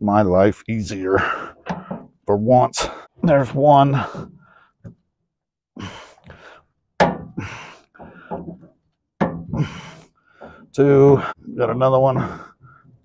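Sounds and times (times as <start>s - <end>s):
effortful breathing: 1.1s - 2.2s, 3.8s - 5.0s, 5.8s - 8.8s, 9.4s - 11.5s, 12.1s - 13.0s.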